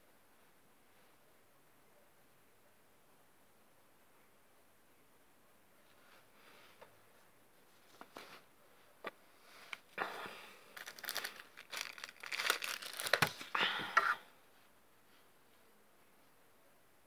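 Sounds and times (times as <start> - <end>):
paper tissue crinkling and ripping: 10.7 - 13.6.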